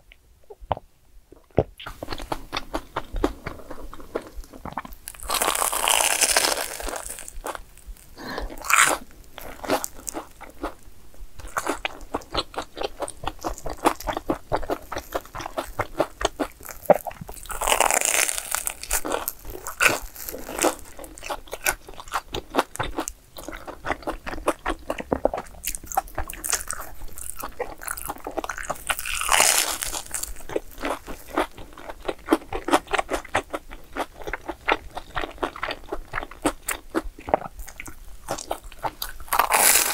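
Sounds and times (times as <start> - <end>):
crunchy bites: 1.5 - 10.8, 11.4 - 39.9
chewing: 11.4 - 39.9.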